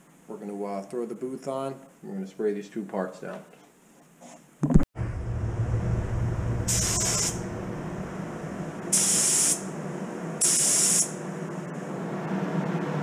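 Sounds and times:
exhaust fan droning: 5.0 - 13.0
spray gun hissing: 6.7 - 7.5, 8.8 - 9.7, 10.4 - 11.2.

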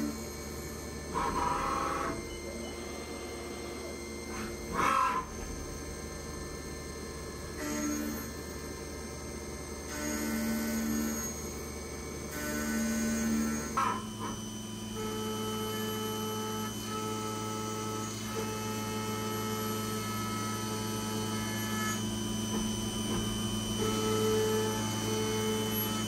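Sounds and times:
milling machine hum with whining tones: 0.0 - 26.0.

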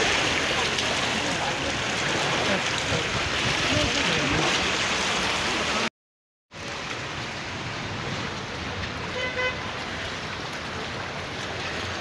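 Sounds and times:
traffic on a flooded road: 0.0 - 5.9, 6.5 - 12.0
car horn toot: 9.1 - 9.7.

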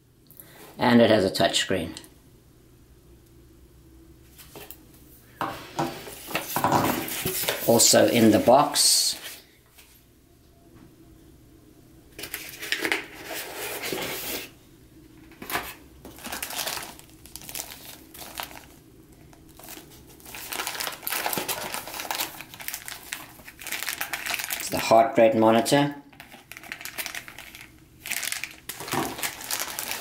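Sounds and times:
plastic bags crinkling: 15.5 - 25.0, 26.1 - 30.0.

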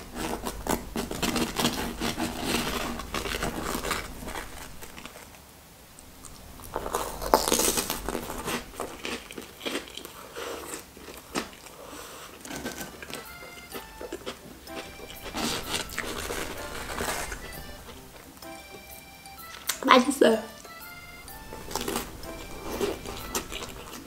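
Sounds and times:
biscuit scooping crisp crust: 0.0 - 19.8, 20.6 - 24.0
chewing: 0.0 - 19.9, 20.5 - 24.0
crunchy biscuit bite: 6.0 - 18.3, 20.7 - 24.0.

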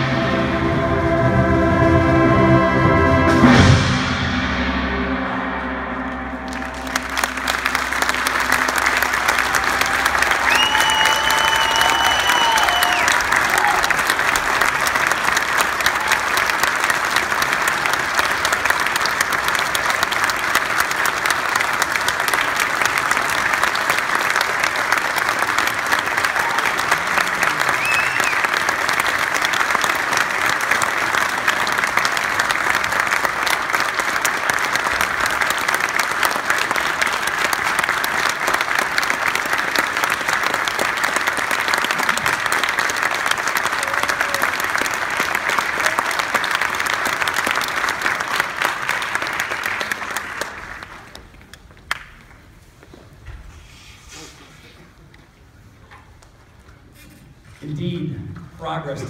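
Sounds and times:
audience applauding: 6.4 - 52.8.

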